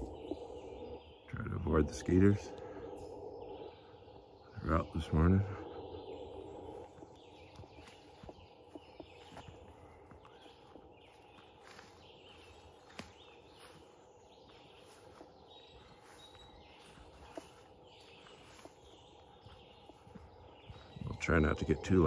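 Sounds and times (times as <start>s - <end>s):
birds singing and chirping: 0.0s - 22.0s
footsteps on dirt trail: 6.0s - 22.0s.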